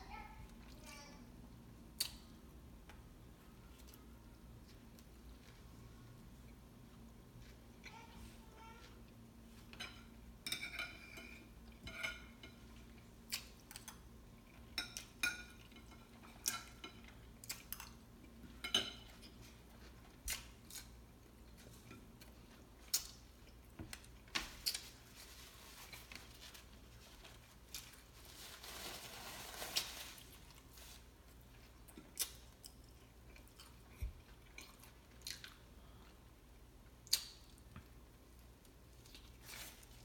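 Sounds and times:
metal fork clinking on a plate: 9.8s - 12.6s
paper napkin rustling: 24.4s - 31.2s.

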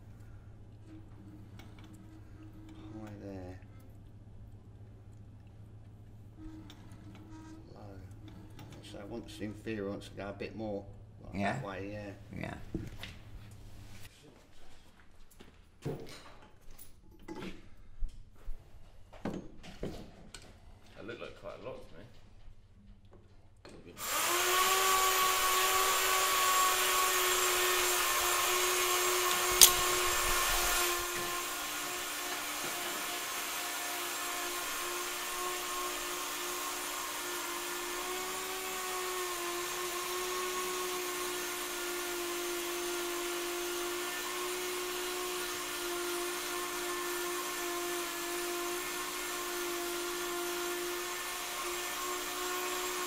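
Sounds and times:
sharp click: 29.6s - 30.0s.

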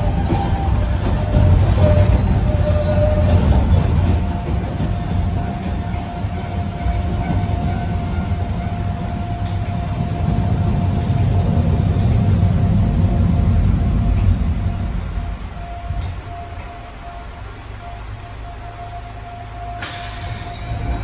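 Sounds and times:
wheels rumbling on rail: 0.0s - 21.0s
scattered clicks: 11.0s - 12.4s.

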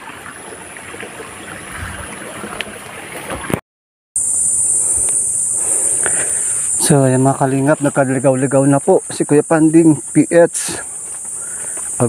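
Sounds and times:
stream water over rocks: 0.0s - 3.6s
high-pitched insect drone: 4.2s - 12.0s.

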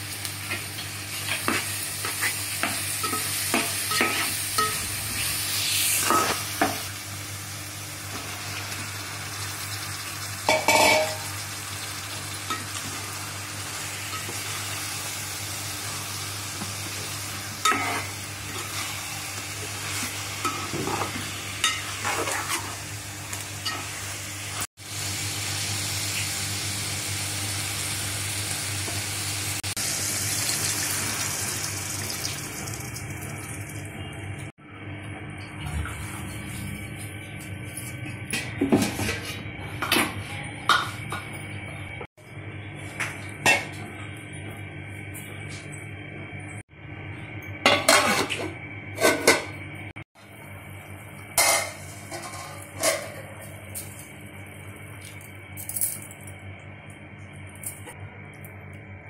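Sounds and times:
pot sizzling: 0.0s - 34.5s, 50.2s - 55.3s
metal pot lid clattering: 10.5s - 11.2s.

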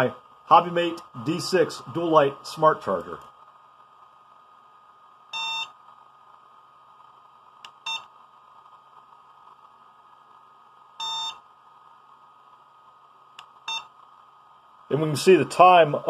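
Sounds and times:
faint steady hum: 0.0s - 16.0s
charger beeping: 5.3s - 5.8s, 7.7s - 8.1s, 11.0s - 11.4s, 13.6s - 13.9s.

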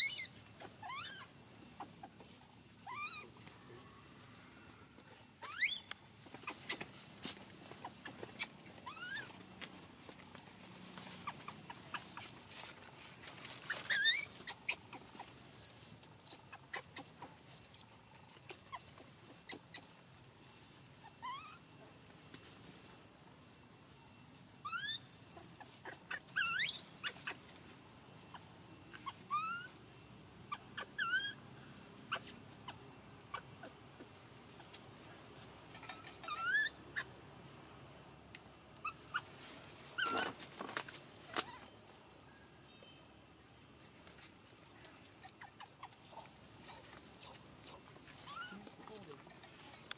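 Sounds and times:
baby monkey whimpering: 0.0s - 2.1s, 2.8s - 3.3s, 5.4s - 5.8s, 7.8s - 9.4s, 13.7s - 15.4s, 16.2s - 17.4s, 21.1s - 21.6s, 24.6s - 25.0s, 25.6s - 27.4s, 28.9s - 29.8s, 30.5s - 31.4s, 32.1s - 33.7s, 36.2s - 37.1s, 40.0s - 40.4s, 45.2s - 48.7s.

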